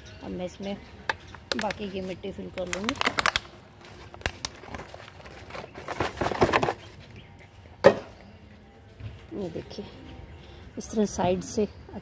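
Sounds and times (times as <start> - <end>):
plastic bag rustling: 1.6 - 6.8.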